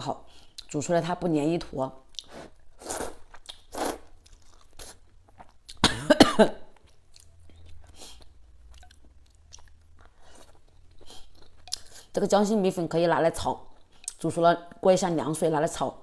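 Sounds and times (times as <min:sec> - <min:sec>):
chewing: 0:02.1 - 0:05.8, 0:06.8 - 0:12.2
person slurping noodles: 0:02.2 - 0:04.1
wet mouth clicks: 0:03.0 - 0:04.0
short cough: 0:05.8 - 0:06.6.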